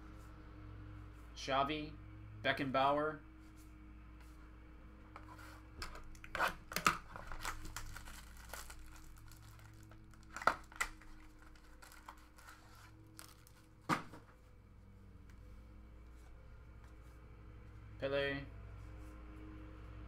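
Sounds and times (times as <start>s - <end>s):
card packaging crinkling: 5.8s - 13.7s.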